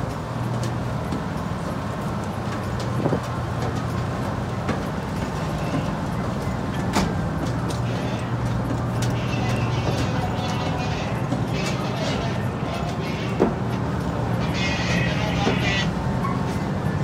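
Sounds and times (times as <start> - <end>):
large engine droning: 0.0 - 17.0
footsteps on metal steps: 2.2 - 14.4.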